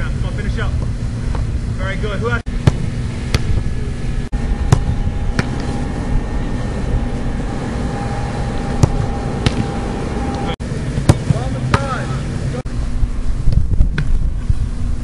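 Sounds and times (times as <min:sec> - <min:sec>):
low outdoor rumble: 0:00.0 - 0:15.0
soccer ball being kicked: 0:02.6 - 0:03.6, 0:04.7 - 0:05.7, 0:11.0 - 0:12.0.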